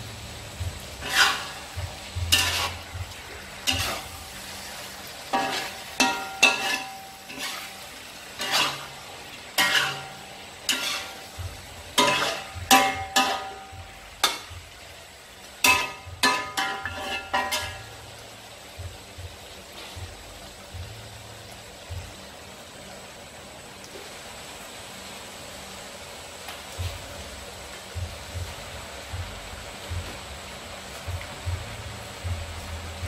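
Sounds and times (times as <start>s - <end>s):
steady sizzle: 0.0s - 33.0s
metal spatula scraping a wok: 0.9s - 4.6s, 5.2s - 14.5s, 15.6s - 17.9s.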